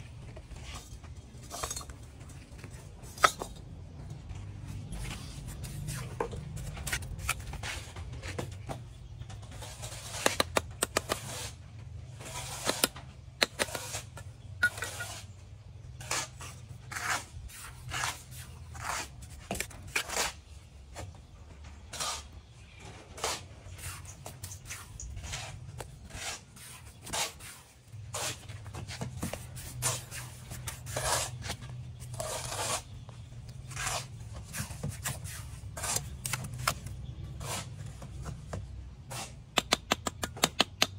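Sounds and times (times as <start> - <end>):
trowel scraping mortar: 0.6 - 3.6, 4.3 - 8.5, 9.5 - 20.6, 21.8 - 22.4, 23.1 - 38.3, 39.0 - 40.9
trowel tapping bricks: 2.6 - 3.7, 10.0 - 11.5, 12.3 - 15.2, 33.7 - 40.9.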